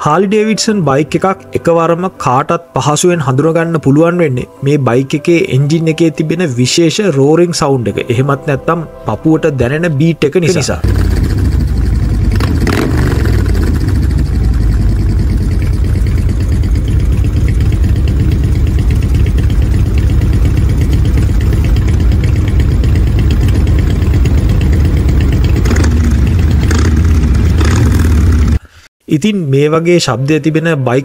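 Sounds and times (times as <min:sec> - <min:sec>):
motorcycle engine idling: 0:10.8 - 0:28.6.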